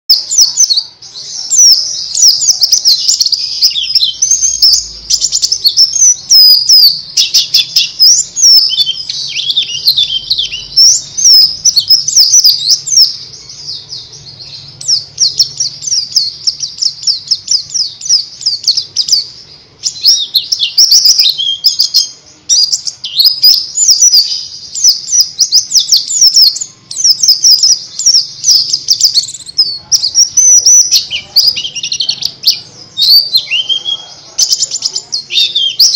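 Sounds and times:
bird twittering song: 0.1s - 35.9s.

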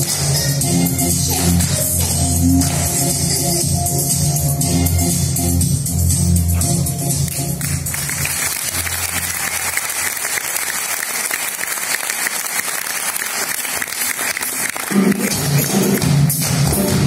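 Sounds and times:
music: 0.0s - 10.1s, 13.6s - 17.0s
theatre audience applauding: 7.2s - 17.0s.

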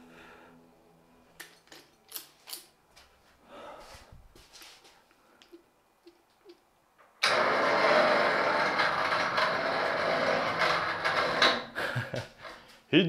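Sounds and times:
machine motor running: 7.2s - 11.5s.

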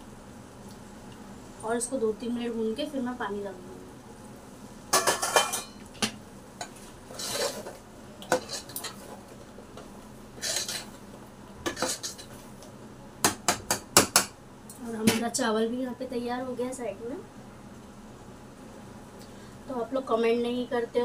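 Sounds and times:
metal spoon scraping a pot: 6.6s - 9.2s, 10.4s - 11.0s, 11.7s - 12.3s.

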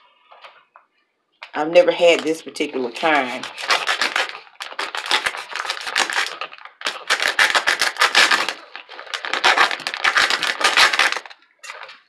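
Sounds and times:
plastic pouch crinkling and tearing: 3.3s - 12.0s.

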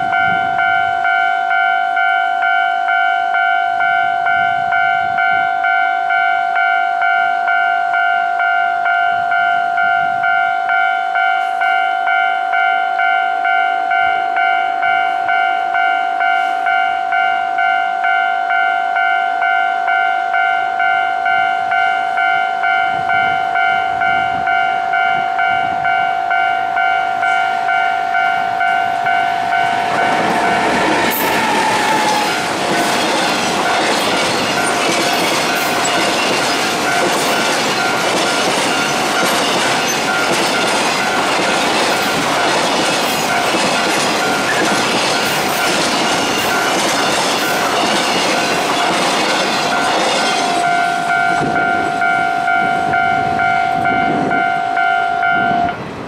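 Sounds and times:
train wheels rattling on rails: 22.8s - 56.0s.

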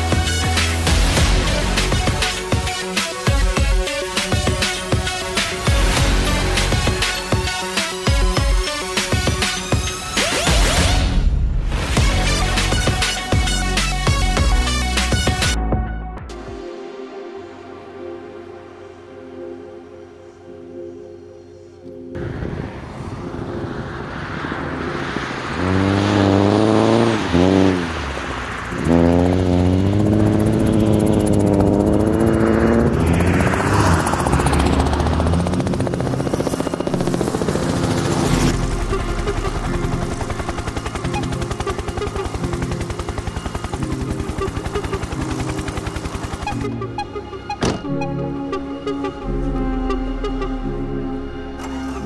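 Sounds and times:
race car engine revving: 25.2s - 40.4s.

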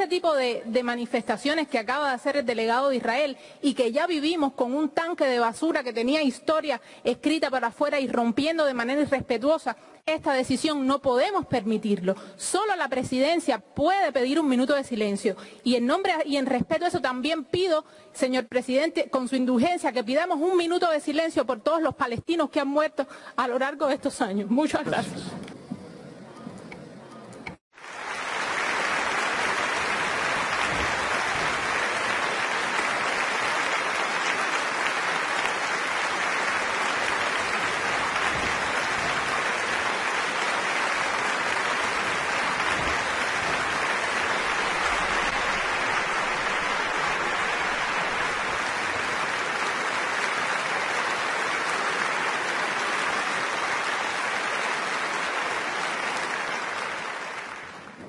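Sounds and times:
large crowd applauding: 27.7s - 58.0s.

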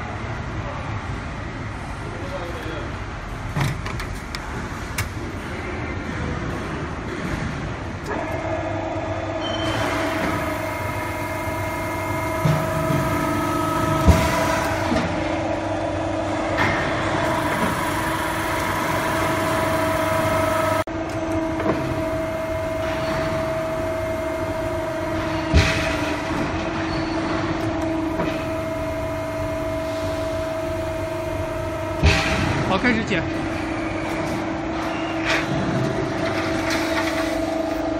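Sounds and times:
machine motor hum: 8.0s - 37.9s.

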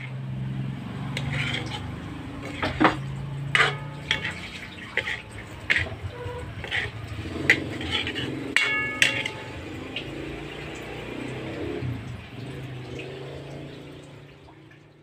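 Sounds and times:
spatula scraping a wok: 0.0s - 10.1s.

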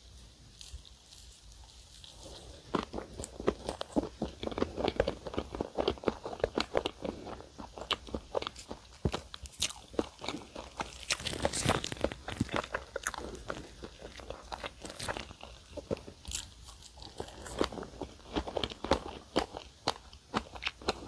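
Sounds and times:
chewing crunchy pastry: 0.0s - 21.0s.

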